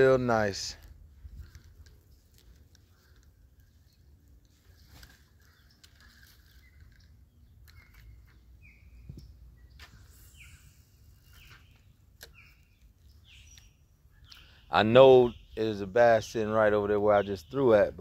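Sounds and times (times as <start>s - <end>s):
steady low rumble: 0.0s - 4.7s
bird chirping: 1.4s - 18.0s.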